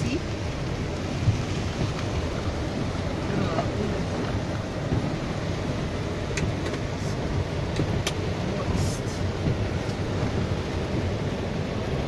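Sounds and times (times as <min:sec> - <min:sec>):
car engine and tyres rumbling: 0:00.0 - 0:12.0
light ticks: 0:07.7 - 0:08.3.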